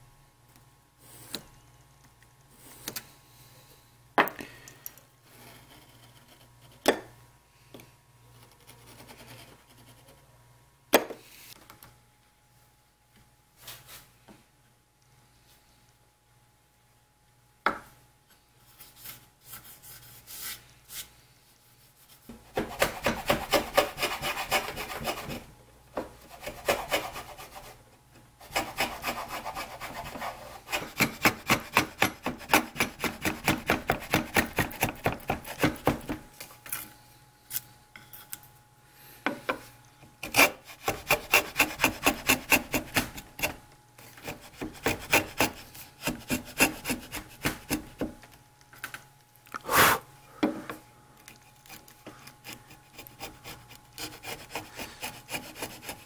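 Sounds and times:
router plane blade scraping wood: 0:52.4 - 0:56.0.

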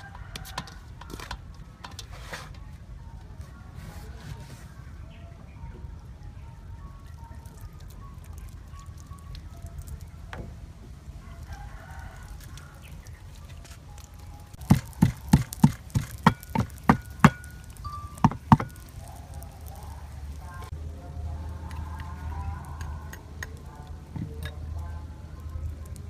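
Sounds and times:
wooden pestle pounding in mortar: 0:14.6 - 0:17.5, 0:18.2 - 0:18.8.

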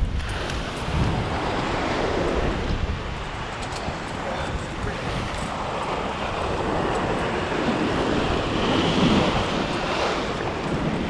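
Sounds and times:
ocean swell washing on rocks: 0:00.0 - 0:11.0
wind on microphone: 0:00.0 - 0:11.0.

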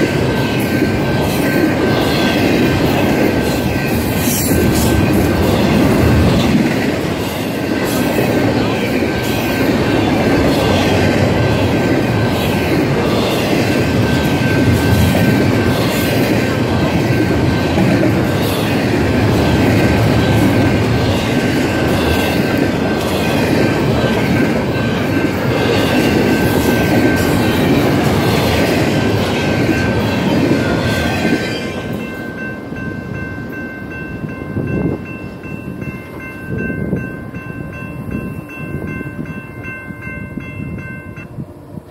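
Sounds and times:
crossing bell ringing: 0:00.0 - 0:41.6
train wheels rumbling on rails: 0:00.0 - 0:41.9.

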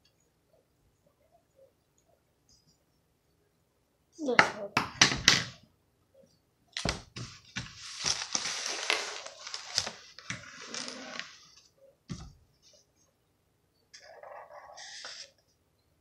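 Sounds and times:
paper rustling: 0:06.8 - 0:11.7.

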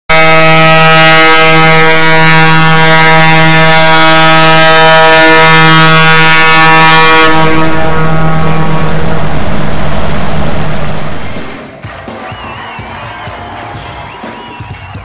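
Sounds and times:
ship's horn blast: 0:00.1 - 0:11.6.

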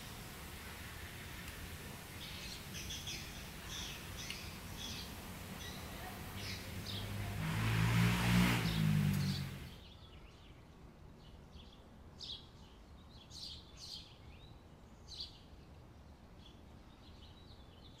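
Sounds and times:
birds chirping: 0:00.0 - 0:10.6
vehicle engine hum: 0:03.5 - 0:09.8.

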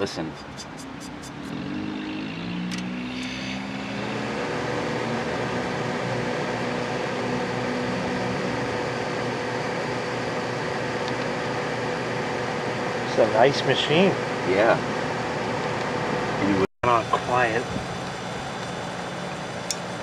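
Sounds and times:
dehumidifier mechanical hum: 0:00.0 - 0:20.0.

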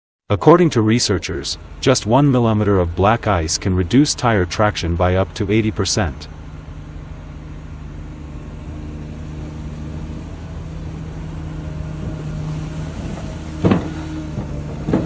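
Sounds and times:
truck engine running: 0:00.4 - 0:15.0
plow blade pushing through snow: 0:06.4 - 0:15.0.

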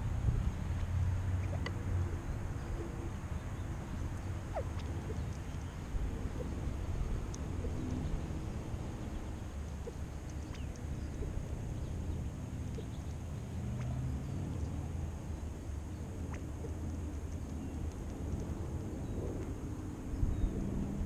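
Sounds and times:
steady low rumble: 0:00.0 - 0:21.0
faint bird chirps: 0:01.4 - 0:18.0.

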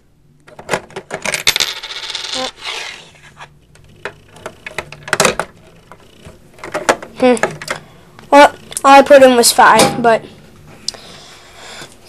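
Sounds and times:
coin rattling through mechanism: 0:01.2 - 0:02.6.

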